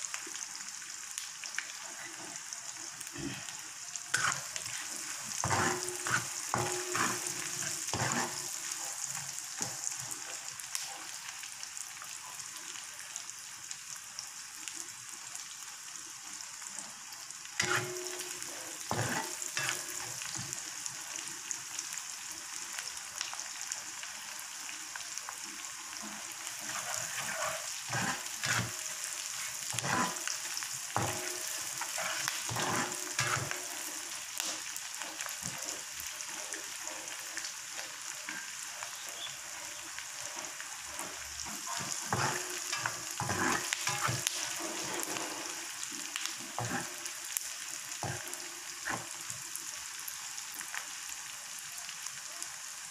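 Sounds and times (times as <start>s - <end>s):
food sizzling in oil: 0.0s - 52.9s
spoon scraping and knocking pan: 4.2s - 9.8s, 17.6s - 20.6s, 26.6s - 30.3s, 31.0s - 33.8s, 41.0s - 45.6s, 46.6s - 46.9s, 48.0s - 49.2s.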